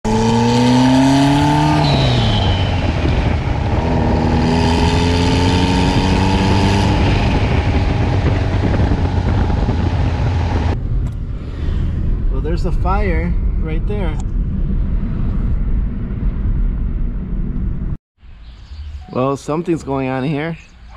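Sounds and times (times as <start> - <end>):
car engine accelerating: 0.1 - 18.0
turbo whistle: 1.6 - 3.2.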